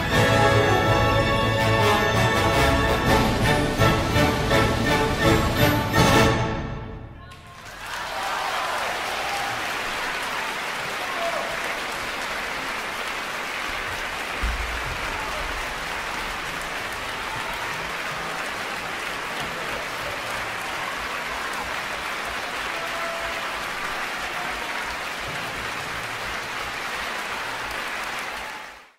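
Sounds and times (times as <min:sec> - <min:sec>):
audience applauding: 0:07.3 - 0:28.9.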